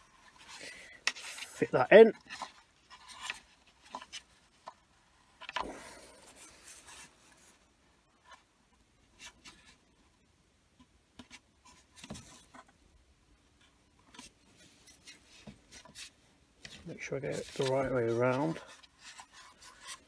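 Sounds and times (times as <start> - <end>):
light rubbing on plastic: 14.1 - 20.0.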